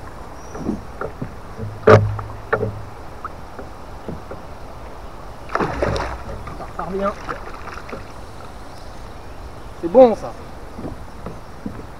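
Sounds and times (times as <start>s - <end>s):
water splashing against boat: 0.0s - 11.9s
sharp knock: 1.6s - 2.8s.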